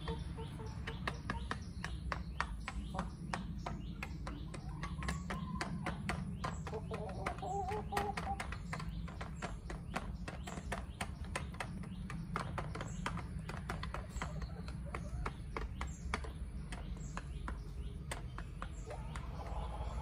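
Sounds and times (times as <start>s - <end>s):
beaks tapping plastic bowl: 0.0s - 20.0s.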